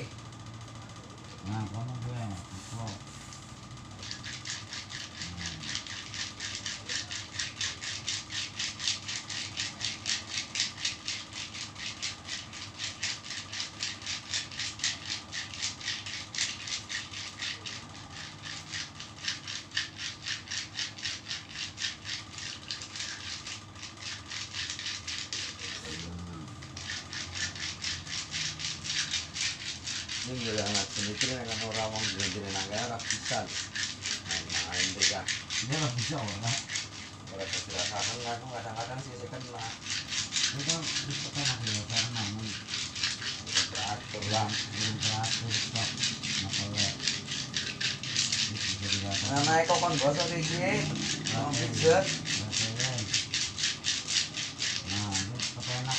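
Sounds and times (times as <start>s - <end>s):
palms rubbing on skin: 2.2s - 55.9s.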